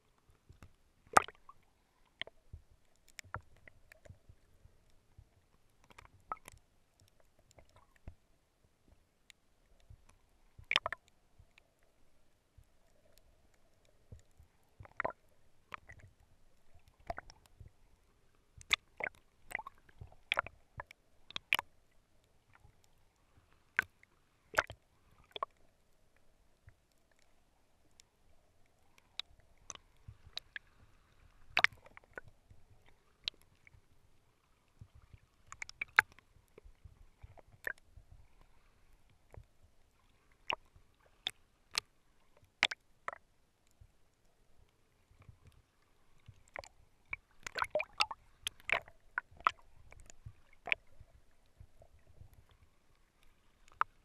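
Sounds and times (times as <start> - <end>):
low rumble of moving water: 0.0 - 54.0
underwater clicks and knocks: 0.5 - 1.5, 2.2 - 4.4, 9.8 - 11.1, 14.1 - 16.1, 18.6 - 21.7, 31.6 - 32.3, 34.9 - 37.8, 42.6 - 43.2, 46.3 - 51.0.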